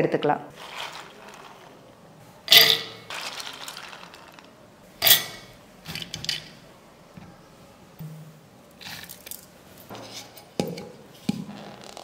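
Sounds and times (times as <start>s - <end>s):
beans clattering into metal jar: 0.6s - 1.8s, 2.5s - 6.5s.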